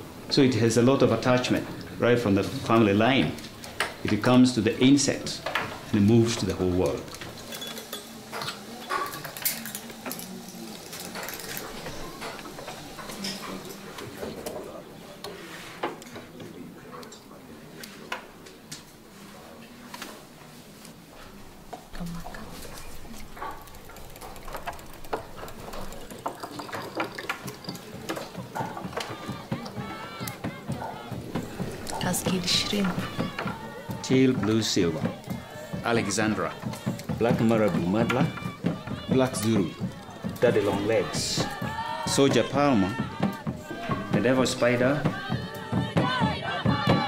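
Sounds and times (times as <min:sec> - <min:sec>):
hand tools clicking and tapping: 0:22.2 - 0:45.2.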